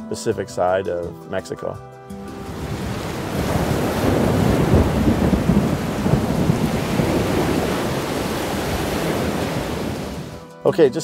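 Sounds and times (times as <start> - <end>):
waves washing over seafront: 2.2 - 10.4
wind gusts: 2.2 - 10.4
driving rain: 2.3 - 10.4.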